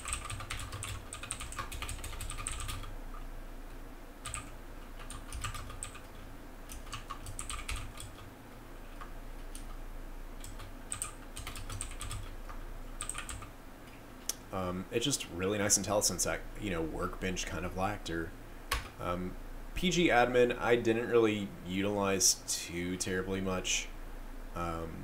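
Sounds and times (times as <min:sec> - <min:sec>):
typing on keyboard: 0:00.0 - 0:02.9, 0:04.2 - 0:08.3, 0:10.4 - 0:13.5.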